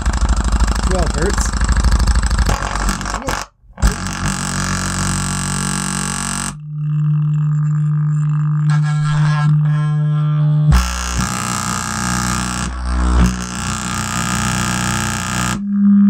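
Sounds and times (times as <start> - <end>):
fast rattle: 0.0 - 4.3
woofer test tones: 0.0 - 16.0.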